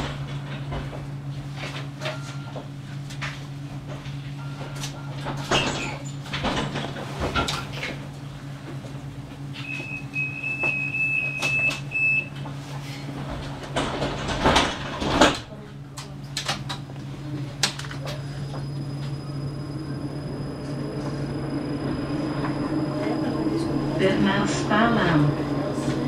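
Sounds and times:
steady high beep: 0:18.3 - 0:24.3.

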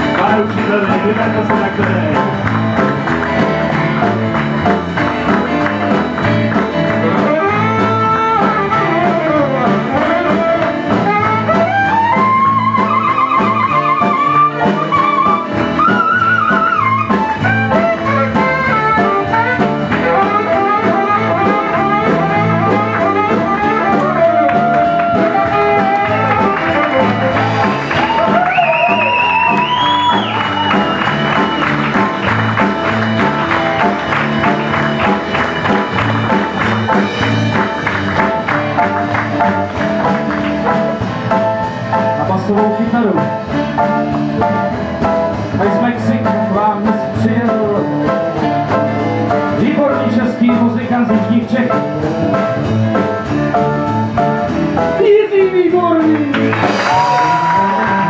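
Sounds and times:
acoustic guitar: 0:00.0 - 0:58.0
bass guitar: 0:00.0 - 0:58.0
drums keeping a beat: 0:00.0 - 0:58.0
saxophone melody: 0:02.6 - 0:42.2.

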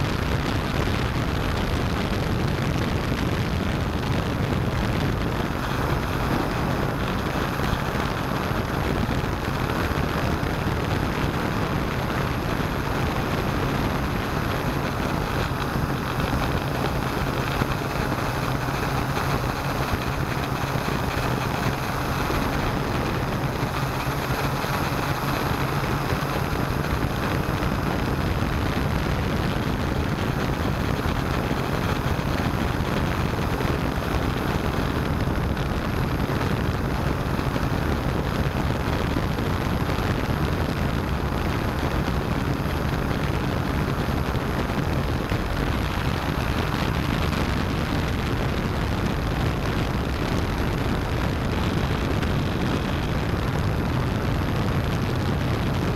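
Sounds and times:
drone propellers rushing: 0:03.8 - 0:34.8.

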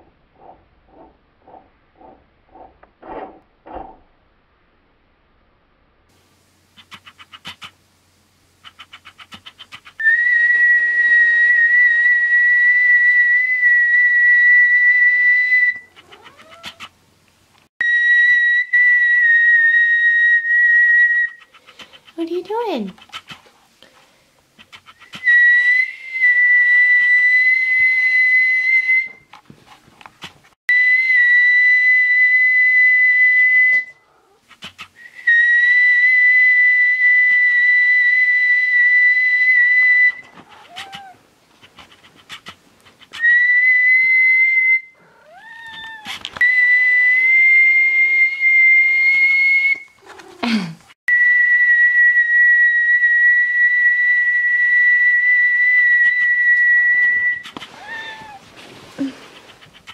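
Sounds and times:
person whistling long notes: 0:10.0 - 0:15.9, 0:17.8 - 0:21.4, 0:25.2 - 0:29.2, 0:30.7 - 0:34.0, 0:43.2 - 0:44.9, 0:46.4 - 0:49.9, 0:51.1 - 0:57.5
cat meowing: 0:15.8 - 0:16.9, 0:40.3 - 0:41.2, 0:45.0 - 0:46.3, 0:57.5 - 0:58.5.

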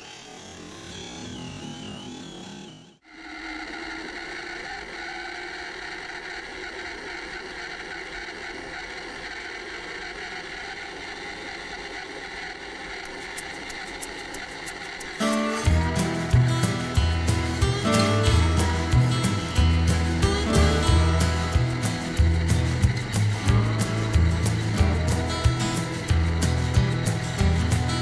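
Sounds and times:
electric motor and gears whining: 0:00.0 - 0:28.0
music: 0:15.2 - 0:28.0.

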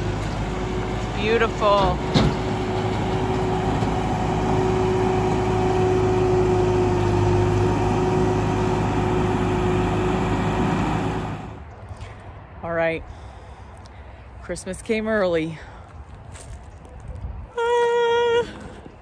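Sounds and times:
tractor diesel engine running: 0:00.0 - 0:11.8.

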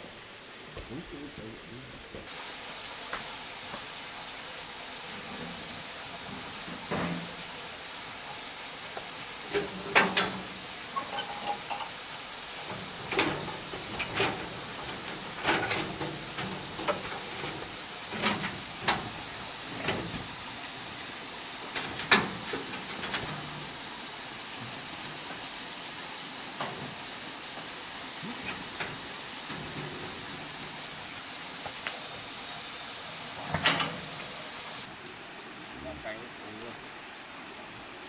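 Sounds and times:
knocks and clanks: 0:06.2 - 0:07.5, 0:09.4 - 0:12.0, 0:12.6 - 0:20.6, 0:21.6 - 0:23.9, 0:26.5 - 0:27.2, 0:28.2 - 0:31.1, 0:33.4 - 0:34.3.

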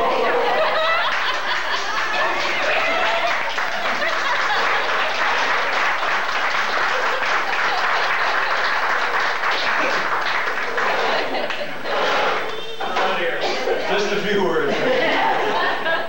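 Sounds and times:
voices: 0:00.0 - 0:05.8, 0:10.7 - 0:16.0
people applauding: 0:00.0 - 0:13.3.

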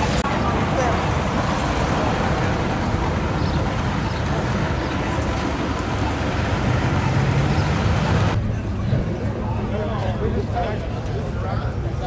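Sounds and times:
car engines idling in traffic: 0:00.0 - 0:08.6.

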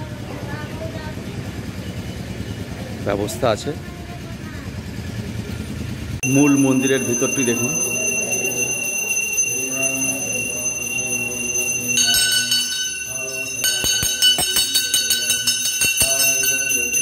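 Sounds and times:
bells ringing: 0:06.2 - 0:17.0.

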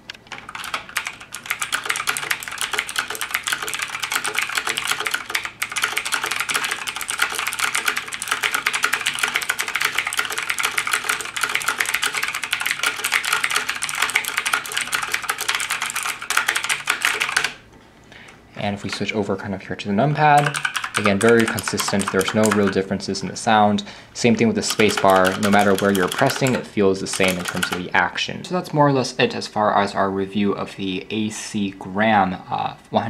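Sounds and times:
mechanical keyboard typing: 0:00.3 - 0:17.6, 0:18.8 - 0:19.1, 0:20.2 - 0:23.0, 0:24.3 - 0:27.9.

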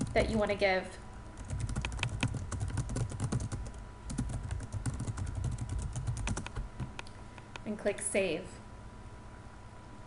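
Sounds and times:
typing on a keyboard: 0:01.4 - 0:07.1.

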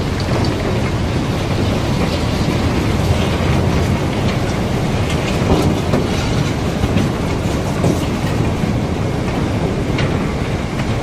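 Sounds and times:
rock and ore pouring rumble: 0:00.0 - 0:10.3.

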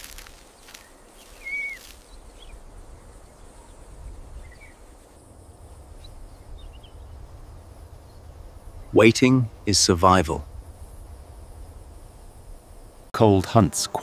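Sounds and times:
bird chirps: 0:00.6 - 0:04.8.

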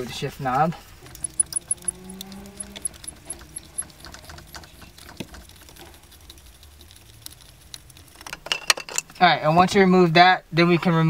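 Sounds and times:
shift knob clicking and rattling: 0:01.0 - 0:09.2.

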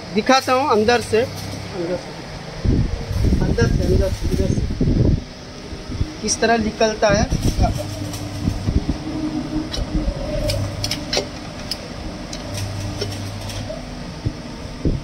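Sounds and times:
fan-like hum: 0:00.0 - 0:15.0
small clicks and creaks: 0:09.7 - 0:13.8.

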